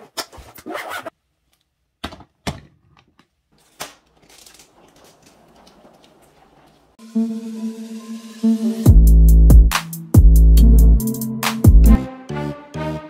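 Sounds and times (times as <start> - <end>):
suitcase zipper rasp: 0.0 - 1.1
suitcase rolling on wheels: 4.7 - 7.0.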